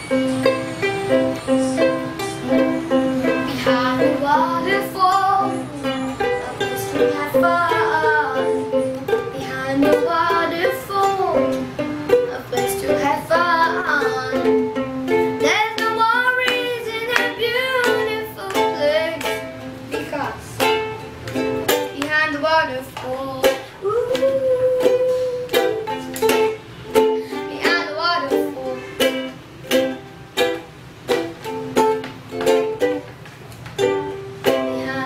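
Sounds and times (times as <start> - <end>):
ukulele strumming: 0.0 - 35.0
child singing: 1.1 - 20.8, 21.8 - 26.5, 27.2 - 29.3, 34.4 - 35.0.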